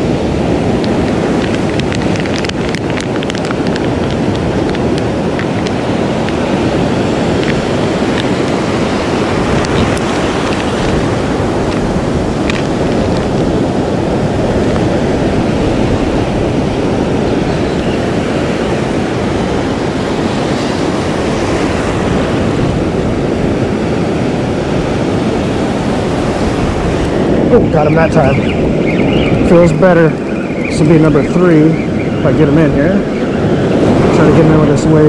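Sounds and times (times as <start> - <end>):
ocean surf breaking: 0.0 - 35.0
wind buffeting microphone: 0.0 - 35.0.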